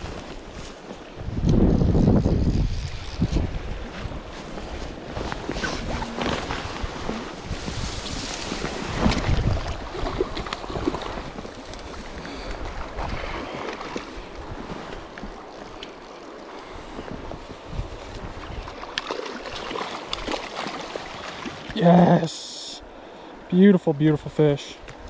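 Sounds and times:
wind buffeting microphone: 0:00.0 - 0:15.6, 0:16.8 - 0:19.0
river water flowing: 0:02.9 - 0:25.0.

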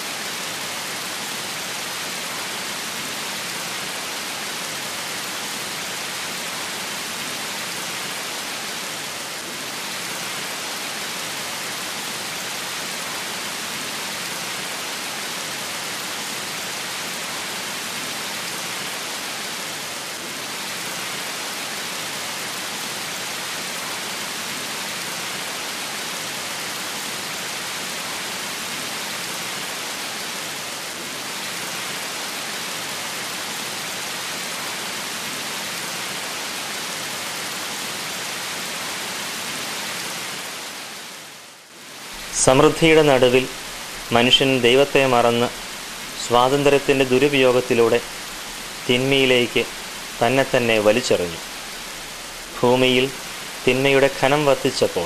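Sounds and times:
waterfall splashing onto stones: 0:42.1 - 0:54.8.

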